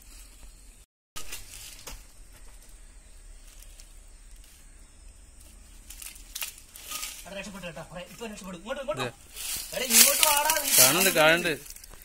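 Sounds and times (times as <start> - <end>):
steady low hum: 0.0 - 10.7
faint hiss: 0.0 - 12.0
soft ticks or rustles: 9.2 - 12.0.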